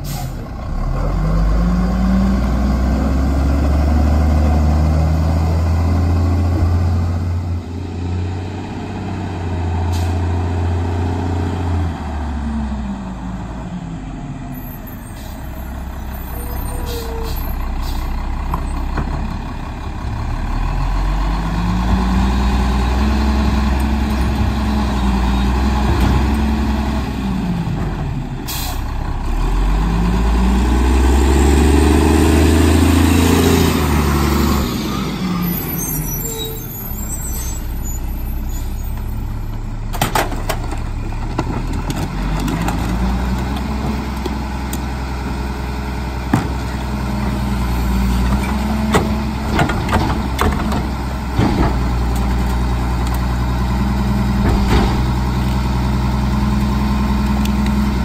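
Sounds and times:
air brakes hissing: 0:00.0 - 0:00.4, 0:14.9 - 0:18.2, 0:28.5 - 0:28.9
garbage truck diesel engine: 0:00.0 - 0:58.0.

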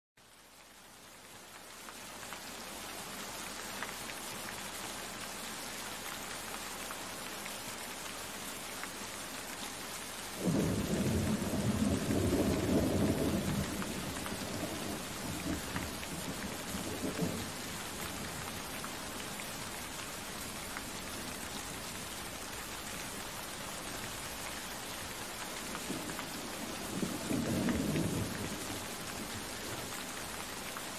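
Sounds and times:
falling rain hiss: 0:00.2 - 0:30.9
deep thunder rumble: 0:10.4 - 0:17.5.

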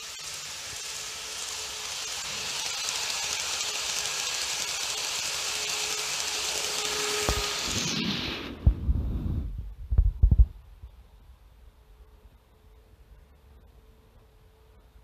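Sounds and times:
model train whirring on track: 0:00.0 - 0:08.0.

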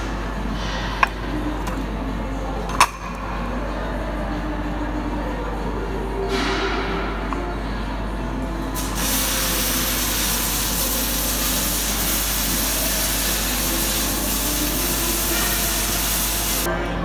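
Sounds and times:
loud steady hiss: 0:08.8 - 0:16.7.

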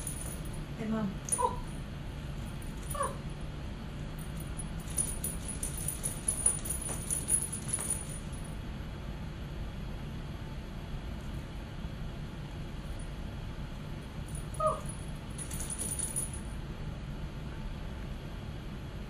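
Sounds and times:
light jingling: 0:00.0 - 0:00.6, 0:04.2 - 0:08.5, 0:14.3 - 0:16.5
steady low hum: 0:00.0 - 0:19.0.

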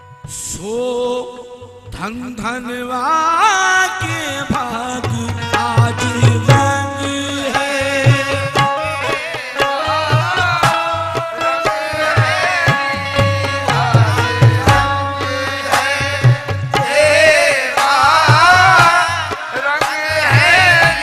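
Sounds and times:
person singing: 0:00.4 - 0:21.0
hand drum strokes: 0:12.2 - 0:16.9.

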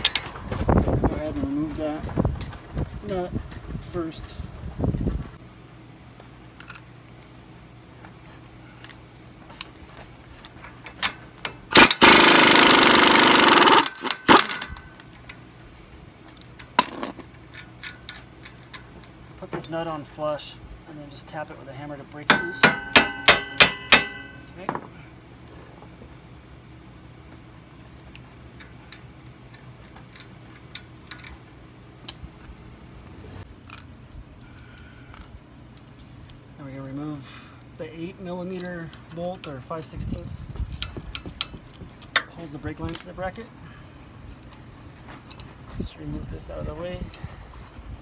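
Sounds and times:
steady low hum: 0:00.0 - 0:48.0
impact wrench hammering: 0:11.5 - 0:14.8, 0:22.2 - 0:24.9.

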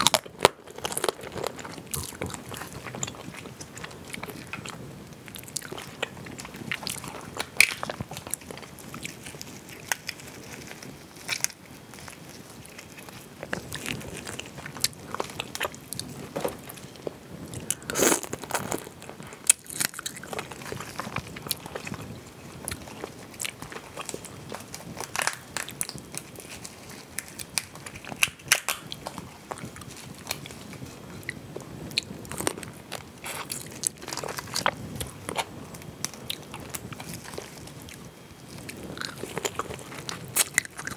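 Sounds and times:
crayfish shells cracking: 0:00.0 - 0:30.8
wet chewing: 0:00.0 - 0:40.9.

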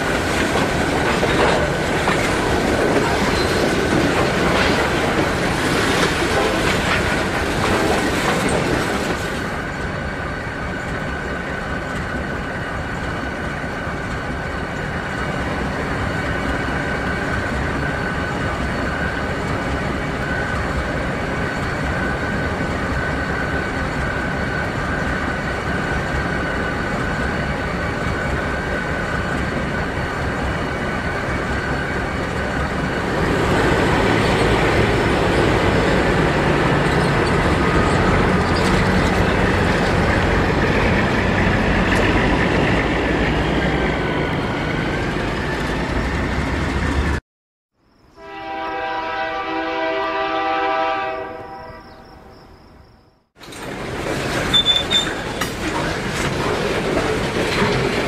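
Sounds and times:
train rumbling by: 0:00.0 - 0:47.2, 0:47.9 - 0:58.0
train horn: 0:06.3 - 0:07.0, 0:48.2 - 0:52.4.

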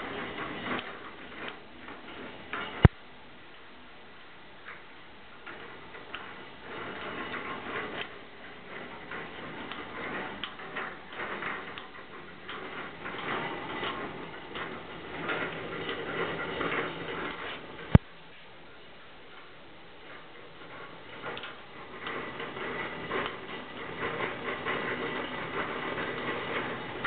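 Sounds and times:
trommel clicking and rattling: 0:05.4 - 0:18.0.

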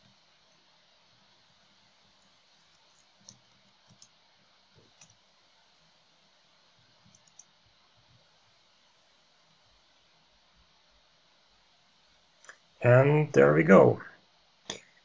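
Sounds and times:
computer mouse clicks: 0:02.8 - 0:04.2, 0:05.0 - 0:05.2, 0:07.0 - 0:07.5.

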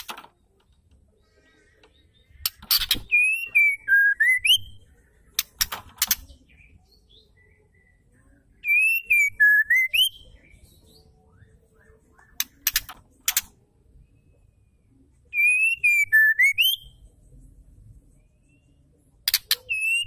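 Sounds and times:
bird singing: 0:00.0 - 0:20.0
sharp clicks: 0:05.3 - 0:06.4, 0:12.4 - 0:13.6.

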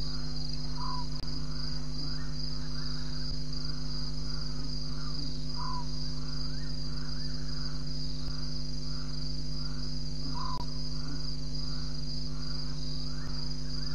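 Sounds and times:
crickets trilling: 0:00.0 - 0:13.9
lower pulsing insect call: 0:00.0 - 0:13.9.

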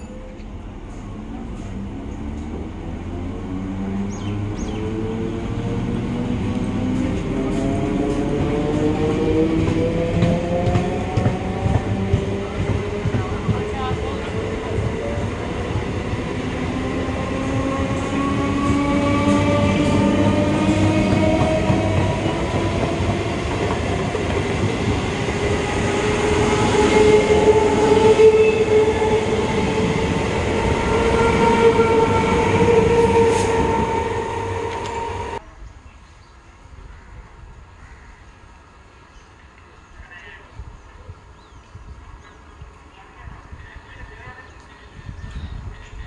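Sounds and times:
wheels rumbling on rail: 0:00.0 - 0:35.5.

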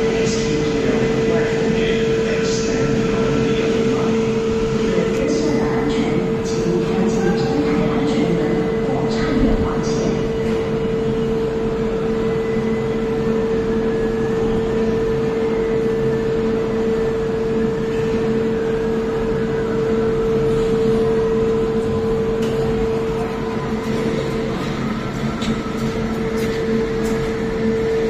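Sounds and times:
funicular train mechanical hum: 0:00.0 - 0:28.0.

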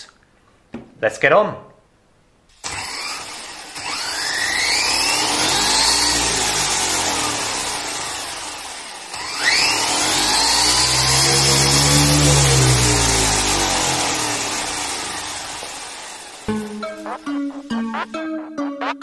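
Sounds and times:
electric motor whining: 0:02.7 - 0:17.2.

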